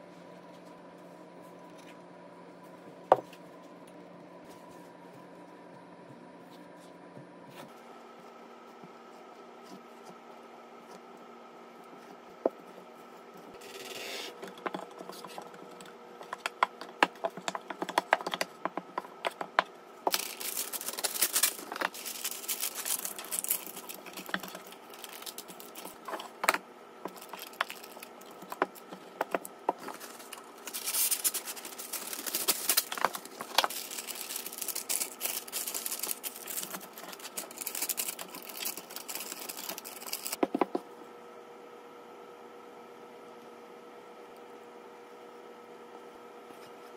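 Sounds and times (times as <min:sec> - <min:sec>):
parchment paper crinkling: 0:15.0 - 0:40.4.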